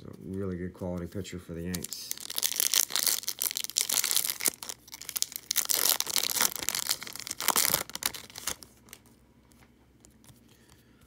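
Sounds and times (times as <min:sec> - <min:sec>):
foil wrapper crinkling: 0:01.7 - 0:09.2.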